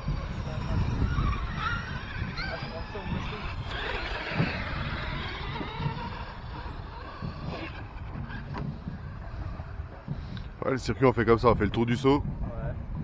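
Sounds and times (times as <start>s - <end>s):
electric toy motor whining: 0.0s - 9.8s.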